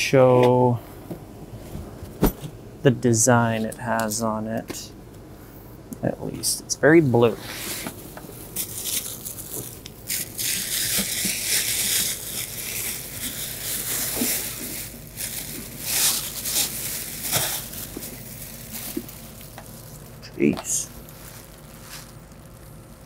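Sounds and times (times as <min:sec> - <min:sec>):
plastic packaging crinkling: 0:07.9 - 0:23.0.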